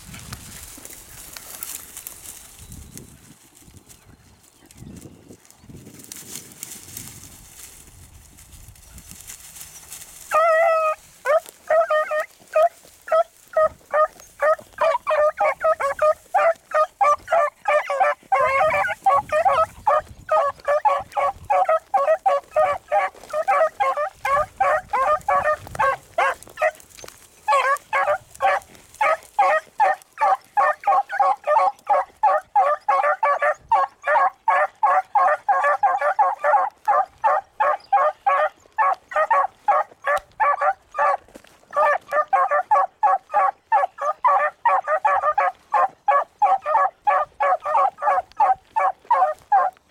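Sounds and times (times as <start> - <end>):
hound baying: 9.6 - 49.8
hounds barking rapidly: 9.9 - 49.8.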